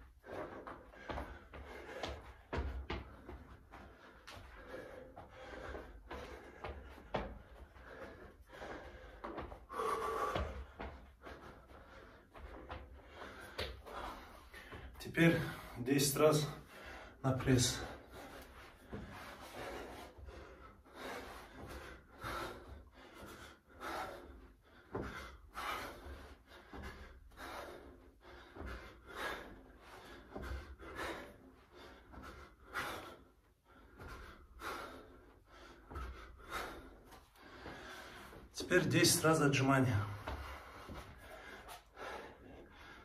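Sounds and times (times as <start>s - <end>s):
man breathing in and out: 0.0s - 38.9s, 39.5s - 43.0s.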